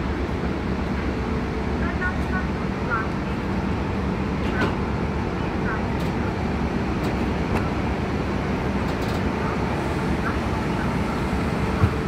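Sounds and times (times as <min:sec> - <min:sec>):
train rumbling hum: 0:00.0 - 0:12.0.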